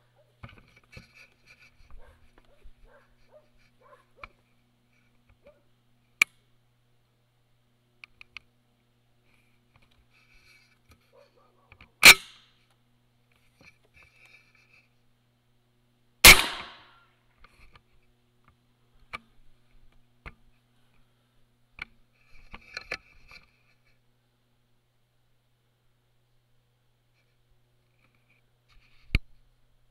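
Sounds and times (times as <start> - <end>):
gunshots: 16.2 - 16.9.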